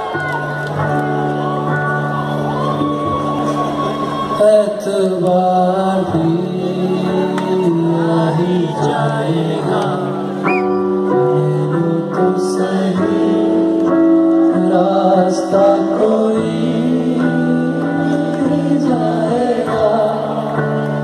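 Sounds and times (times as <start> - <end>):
person singing: 4.4 - 21.0.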